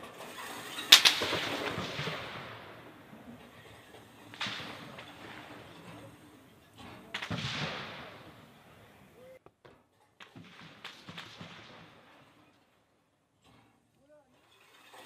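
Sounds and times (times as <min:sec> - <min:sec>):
rifle shots echoing: 0:00.9 - 0:09.4, 0:10.2 - 0:12.3
faint gunshot cracks: 0:07.2 - 0:08.9.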